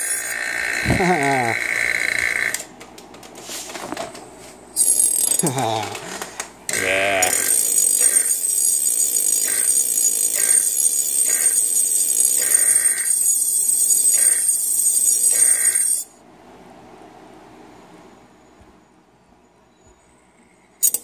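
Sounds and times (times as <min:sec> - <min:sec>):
high-pitched electrical whine: 0:00.0 - 0:02.7
faint hum: 0:00.0 - 0:09.7, 0:16.1 - 0:21.0.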